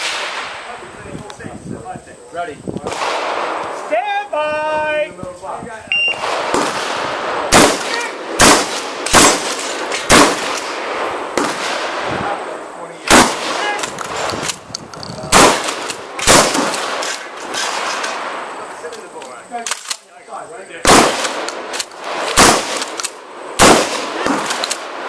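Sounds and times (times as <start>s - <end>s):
shotgun shots: 0.0s - 0.7s, 2.8s - 3.7s, 6.2s - 12.4s, 13.0s - 14.6s, 15.3s - 18.4s, 20.8s - 25.0s.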